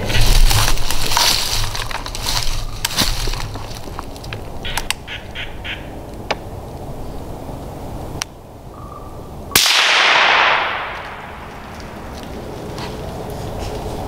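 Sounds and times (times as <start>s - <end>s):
squirrel barking: 4.6s - 6.0s
rifle shot with echo: 9.6s - 11.5s.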